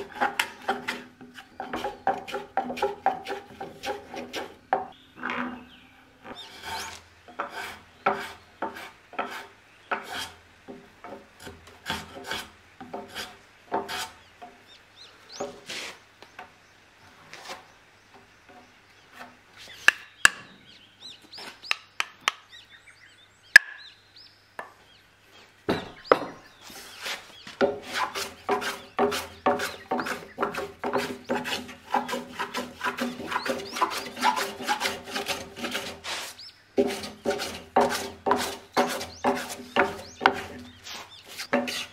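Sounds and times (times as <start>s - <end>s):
hand plane shaving wood: 0.0s - 4.6s, 6.4s - 10.4s, 11.4s - 14.2s, 26.7s - 41.9s.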